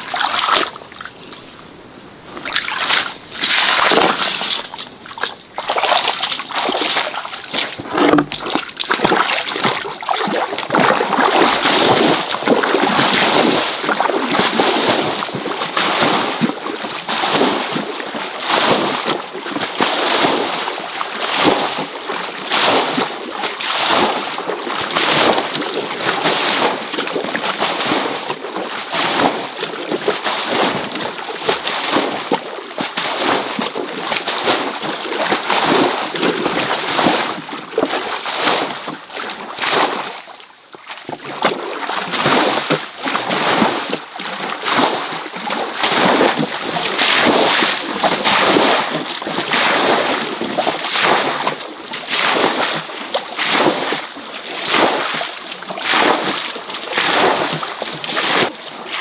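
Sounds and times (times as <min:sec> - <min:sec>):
high steady whine: 0:00.0 - 0:11.6
water splashing and sloshing: 0:00.0 - 0:59.0.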